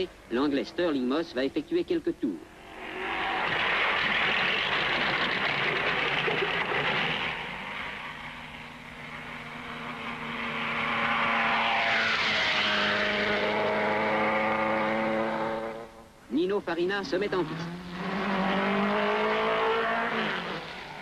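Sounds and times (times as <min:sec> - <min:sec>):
racing car engines passing: 0:02.4 - 0:16.1, 0:17.0 - 0:21.0.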